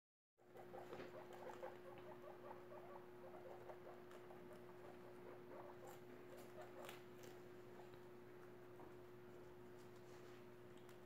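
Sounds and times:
faint steady hum: 0.4s - 11.0s
guinea pigs crunching lettuce: 0.4s - 11.0s.

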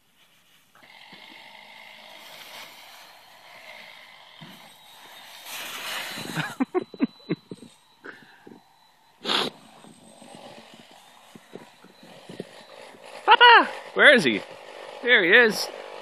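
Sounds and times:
dry leaves rustling and crackling: 2.1s - 3.3s, 4.5s - 6.5s.

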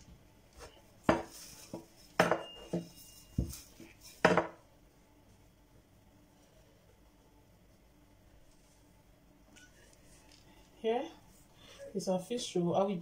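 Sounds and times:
utensils knocking on stone countertop: 2.2s - 3.5s, 4.2s - 4.6s.

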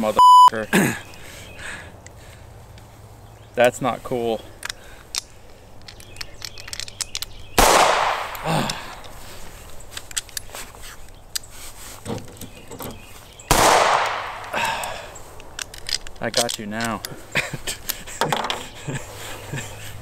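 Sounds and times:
pistol handling clicks: 4.5s - 9.1s, 9.9s - 11.5s, 13.5s - 17.1s
pistol shots with echo: 7.6s - 8.5s, 13.5s - 14.4s.

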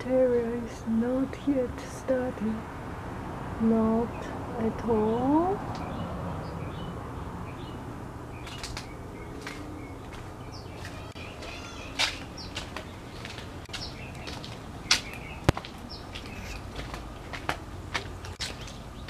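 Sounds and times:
small birds chirping: 3.6s - 19.0s
bird trill: 8.4s - 16.6s.

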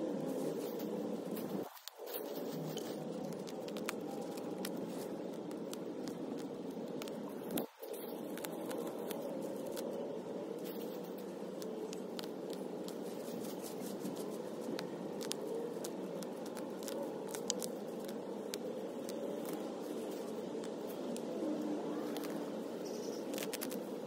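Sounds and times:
steady hum: 0.0s - 24.0s
hands crackling through mulch: 10.6s - 21.3s.

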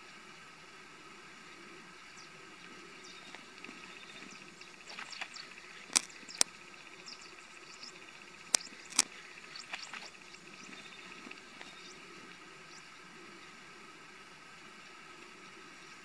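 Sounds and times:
insect drone: 0.0s - 16.0s
sharp clicks: 3.3s - 6.6s, 8.4s - 10.2s.

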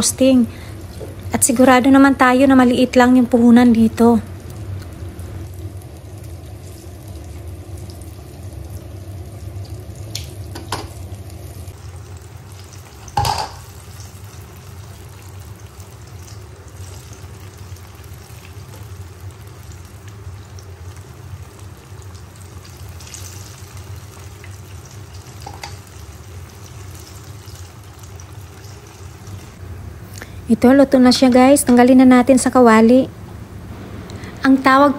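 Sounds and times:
fritters sizzling in oil: 3.4s - 30.3s.

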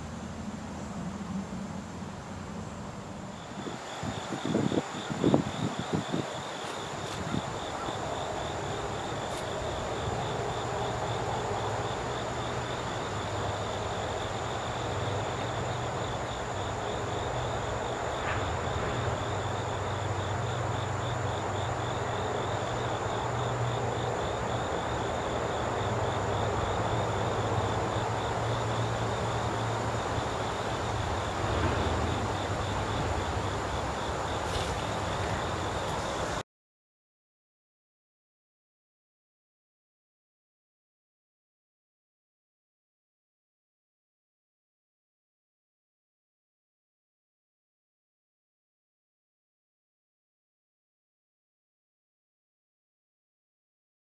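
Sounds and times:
low engine-like hum: 0.0s - 3.9s, 7.7s - 36.4s
steady high insect whine: 0.0s - 36.4s
pulsing high insect trill: 0.2s - 36.4s.

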